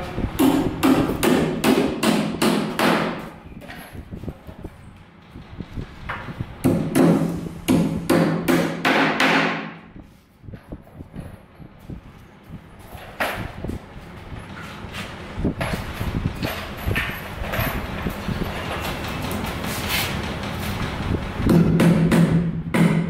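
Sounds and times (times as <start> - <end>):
hammer driving nails into wood: 6.6 - 9.8.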